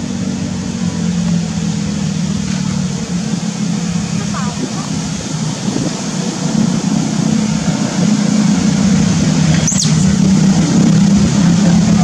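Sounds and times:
low motor hum: 0:00.0 - 0:12.0
short high chirp: 0:09.5 - 0:10.3.

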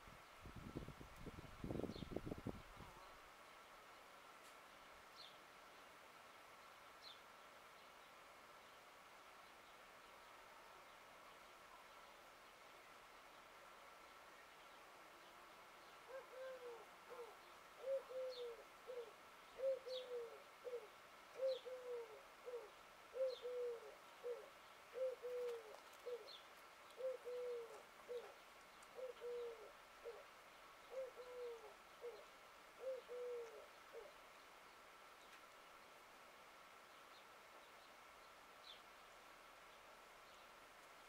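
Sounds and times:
dove cooing: 0:16.1 - 0:30.3, 0:30.9 - 0:34.2.

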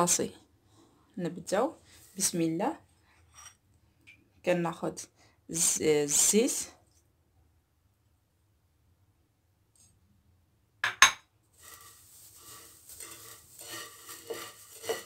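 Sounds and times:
china bowl knocking on table: 0:10.8 - 0:11.3
hand rustling noodles: 0:11.5 - 0:15.0.

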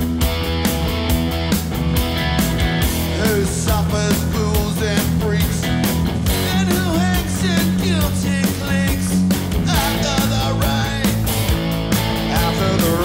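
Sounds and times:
bass guitar: 0:00.0 - 0:13.0
distorted electric guitars: 0:00.0 - 0:13.0
steady drum beat: 0:00.0 - 0:13.0
male lead vocal: 0:03.0 - 0:11.3, 0:12.2 - 0:13.0.

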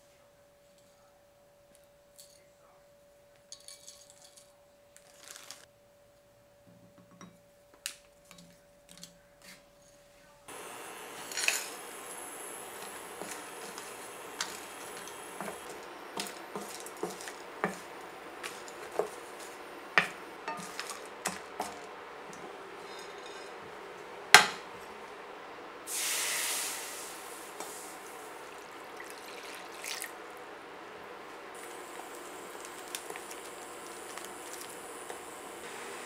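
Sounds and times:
liquid hissing in hot pan: 0:10.5 - 0:23.4, 0:25.8 - 0:30.4, 0:31.5 - 0:36.0
spoon stirring spices in skillet: 0:10.5 - 0:25.3, 0:29.9 - 0:36.0
knock on pan: 0:24.4 - 0:24.7.

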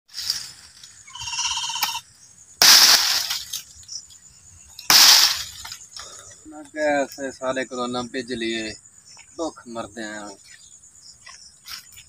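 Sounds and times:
loud rough crashing bursts: 0:04.9 - 0:05.7.

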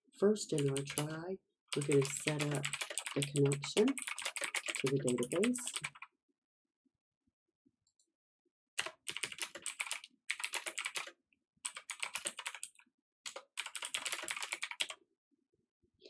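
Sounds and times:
typing on computer keyboard: 0:00.6 - 0:06.1, 0:08.8 - 0:11.1, 0:11.7 - 0:15.0.

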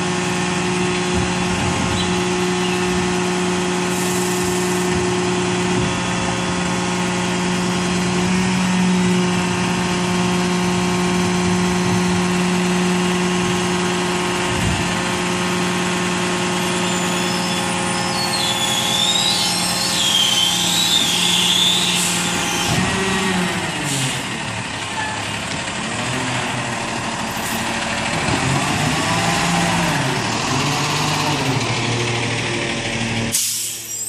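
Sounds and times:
diesel engine revving: 0:00.0 - 0:34.0
high wavering squeal: 0:16.8 - 0:22.8.

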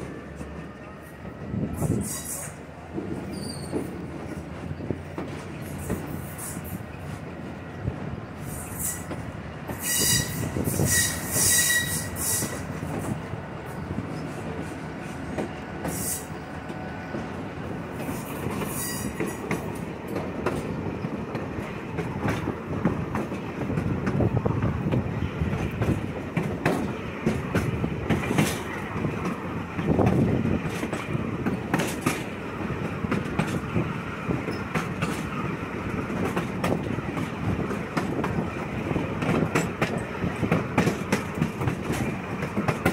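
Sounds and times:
train car rumbling on track: 0:00.0 - 0:42.9
wheel squeal: 0:03.3 - 0:03.9, 0:09.8 - 0:12.6, 0:18.7 - 0:19.4.

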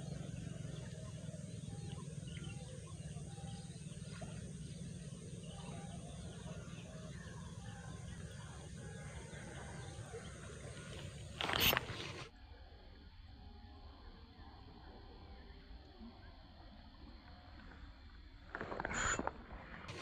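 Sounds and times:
bird chirps: 0:00.0 - 0:12.2
steady low rumble: 0:00.0 - 0:12.3.

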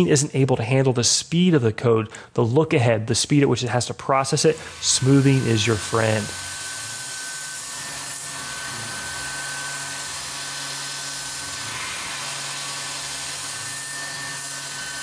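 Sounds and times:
milling machine hiss and whine: 0:04.4 - 0:15.0.

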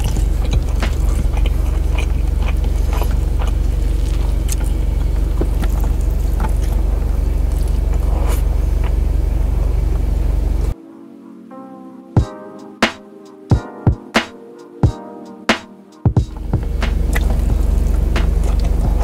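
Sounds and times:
person eating and chewing: 0:00.0 - 0:09.0
car idling hum: 0:00.0 - 0:10.8, 0:16.3 - 0:19.0.

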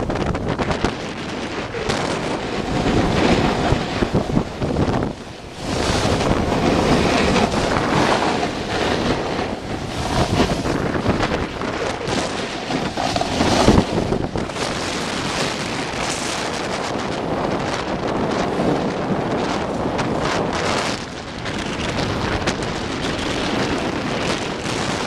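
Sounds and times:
wind rushing over microphone: 0:00.0 - 0:25.0
snowboard edges scraping snow: 0:01.4 - 0:21.0.

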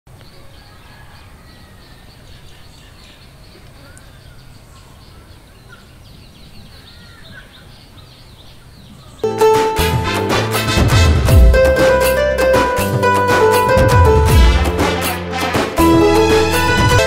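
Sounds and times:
birds chirping: 0:00.1 - 0:09.5.

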